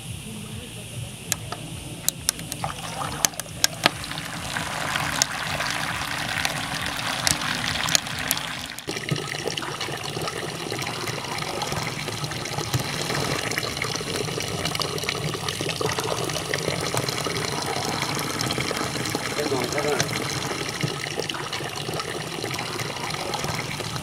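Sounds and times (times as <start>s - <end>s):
sharp clicks: 1.3s - 9.6s
water splashing into plastic bucket: 1.3s - 24.0s
water pouring into metal funnel: 1.4s - 24.0s.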